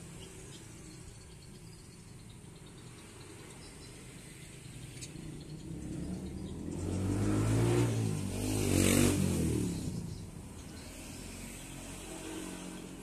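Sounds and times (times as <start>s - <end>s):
vehicle engine passing by: 4.6s - 13.0s.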